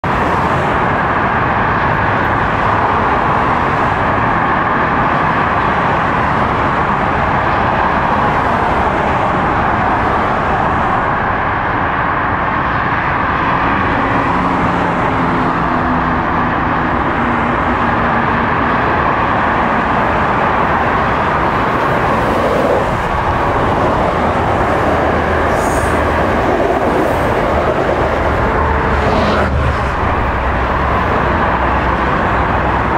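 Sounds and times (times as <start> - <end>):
highway traffic noise: 0.0 - 32.9
train passing with rumble: 0.0 - 32.9.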